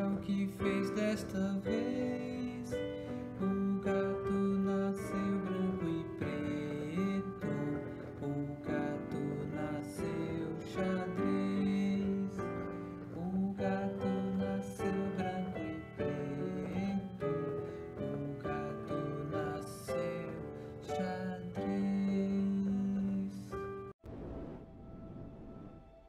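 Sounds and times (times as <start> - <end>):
man singing: 0.0 - 23.9.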